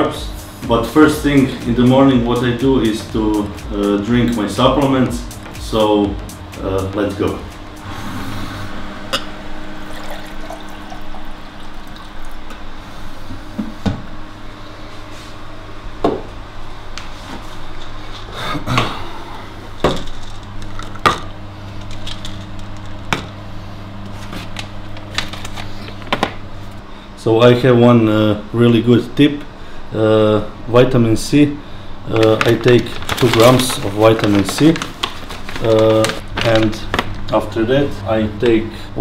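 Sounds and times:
steady low hum: 0.0 - 39.0
water pouring into a cup: 9.9 - 12.4
plastic bottles being handled: 32.1 - 37.1.

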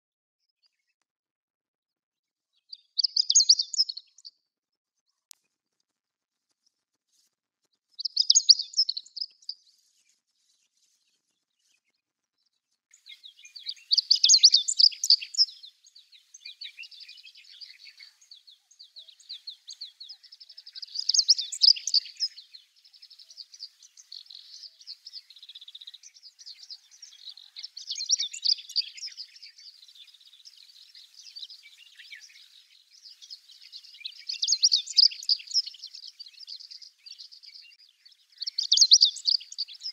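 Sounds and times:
faint bird twittering: 2.7 - 4.3, 8.0 - 10.9, 12.9 - 39.9.

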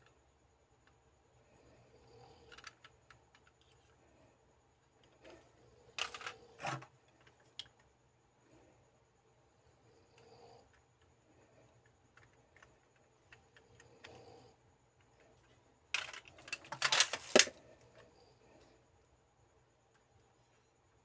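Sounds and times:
plastic toy parts clicking: 2.4 - 4.0, 5.2 - 7.8, 15.4 - 17.6.

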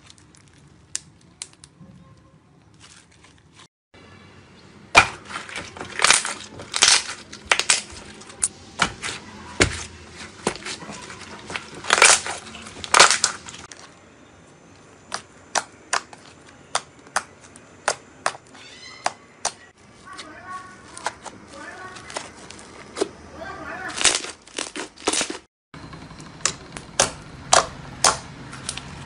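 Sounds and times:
slime squelching and popping: 8.8 - 13.9.

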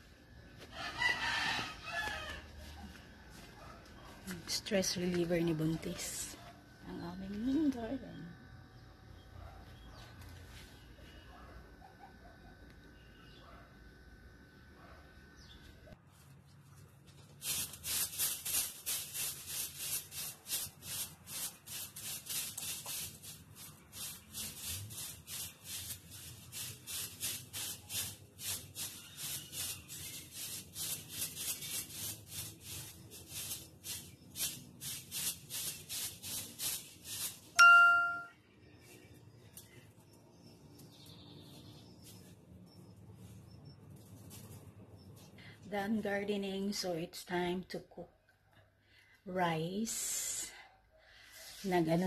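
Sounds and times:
broom sweeping grass: 17.1 - 38.2, 42.0 - 42.4
short bright ding: 37.6 - 38.3.

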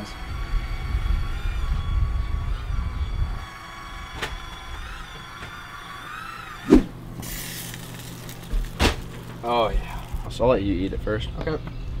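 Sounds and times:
gusty wind rumble: 0.0 - 4.9
small pump whining: 0.0 - 10.4.

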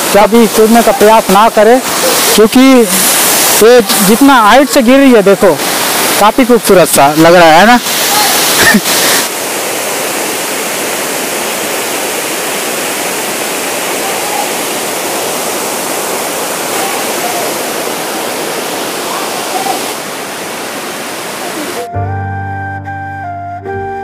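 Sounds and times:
waterfall rushing over rocks: 0.0 - 21.9.

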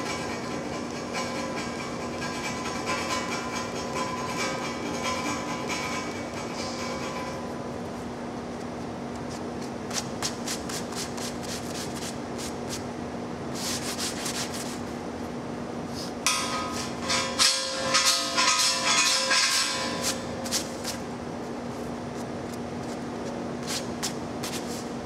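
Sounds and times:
scraper rasping on steel pipe: 0.0 - 7.4.

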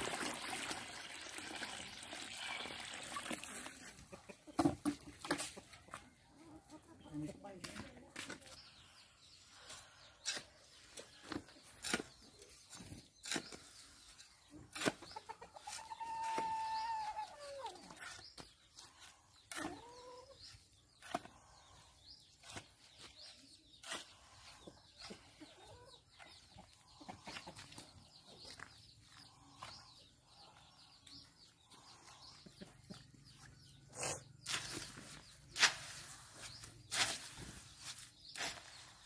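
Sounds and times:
chickens clucking: 2.2 - 7.6, 9.8 - 35.6.

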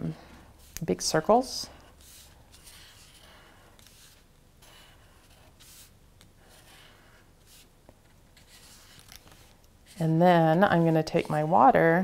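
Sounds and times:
marker scratching on paper: 1.7 - 7.7, 8.4 - 11.6.

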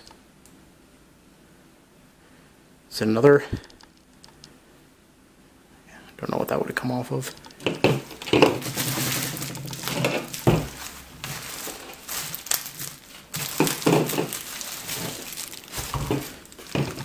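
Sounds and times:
bubble wrap crinkling: 7.6 - 17.0.

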